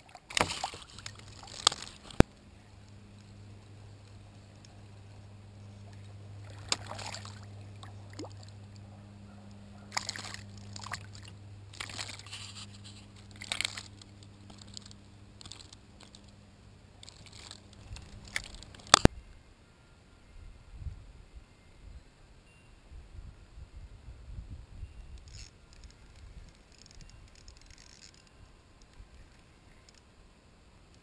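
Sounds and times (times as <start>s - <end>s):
steady low hum: 0.0s - 31.0s
fish splashing at surface: 0.1s - 2.2s, 6.4s - 8.6s, 9.9s - 12.6s.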